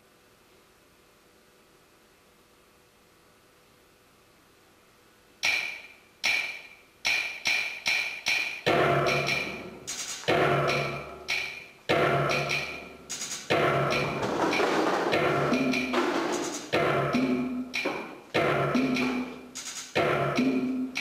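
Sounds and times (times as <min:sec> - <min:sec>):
percussive ringing strikes: 0:05.4 - 0:21.0.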